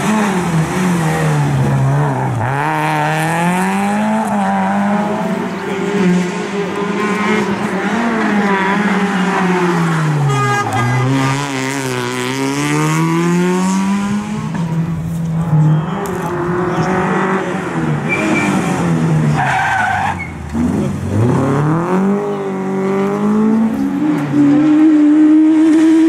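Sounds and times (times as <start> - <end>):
rally car engine revving: 0.0 - 26.0.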